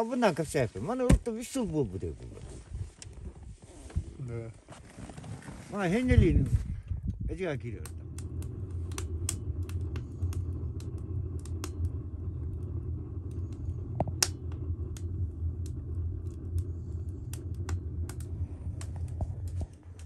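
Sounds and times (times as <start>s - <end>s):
vehicle engine rumble: 5.9s - 20.0s.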